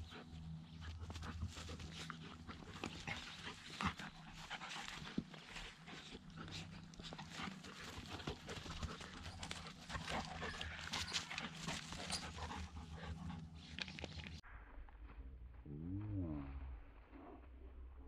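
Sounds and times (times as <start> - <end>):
dog sounds: 0.0 - 14.4
dogs scuffling on grass: 0.1 - 14.4.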